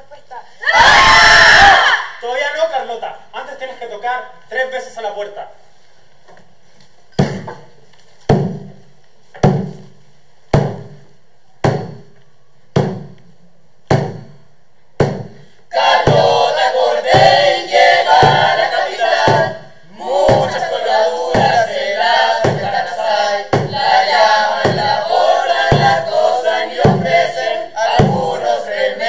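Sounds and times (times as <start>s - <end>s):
heavy ringing thuds: 7.1s - 7.7s
chorus of voices singing: 15.7s - 29.0s.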